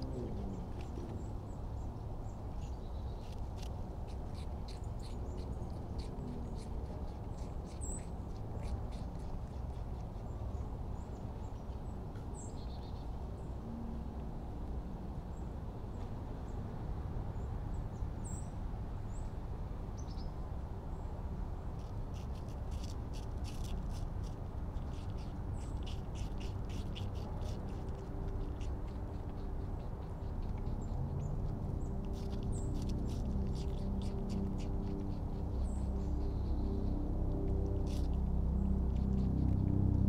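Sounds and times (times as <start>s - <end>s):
low outdoor background: 0.0s - 40.0s
rabbit chewing crisp clicks: 2.6s - 12.4s, 21.8s - 35.9s, 37.7s - 39.8s.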